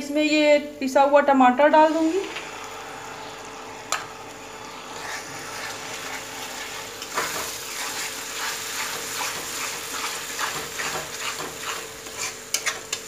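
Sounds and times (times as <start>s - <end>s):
puree sizzling in a pan: 1.8s - 13.0s
metal spatula scraping pan: 5.0s - 13.0s.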